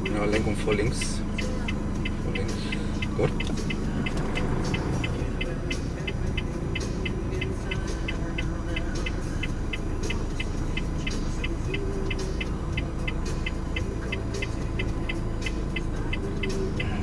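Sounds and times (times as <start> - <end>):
car engine and tyre noise: 0.0 - 17.0
steady high ticking: 0.0 - 17.0.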